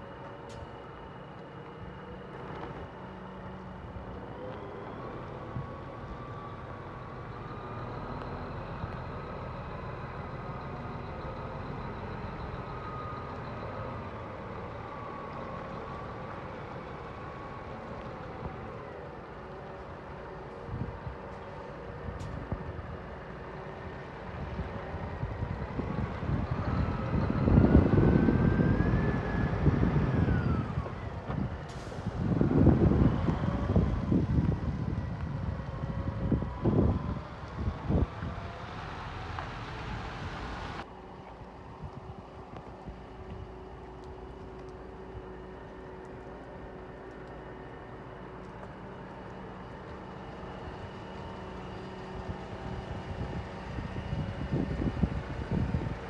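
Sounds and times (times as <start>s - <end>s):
diesel truck driving past: 0.0s - 56.0s
wind buffeting microphone: 19.9s - 46.0s, 49.4s - 56.0s.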